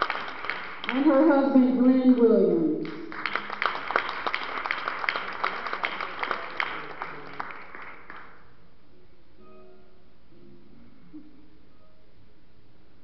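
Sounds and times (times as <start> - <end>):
congregation applauding: 0.0 - 1.6, 2.2 - 8.6.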